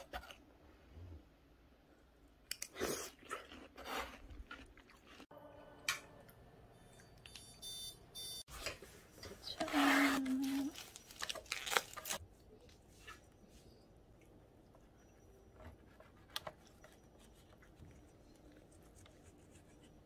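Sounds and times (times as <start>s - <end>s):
wet biting and chewing: 2.5s - 5.3s.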